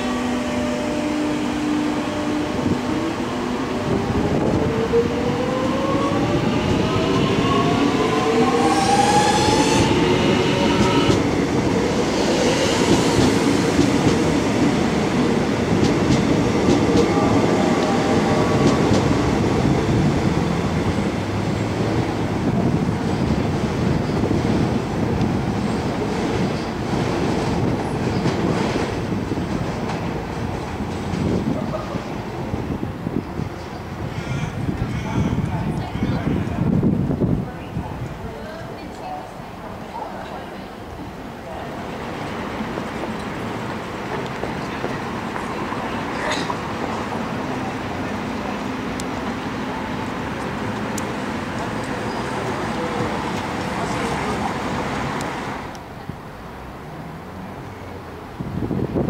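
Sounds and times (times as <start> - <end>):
train wheels clattering on rails: 10.8 - 20.1.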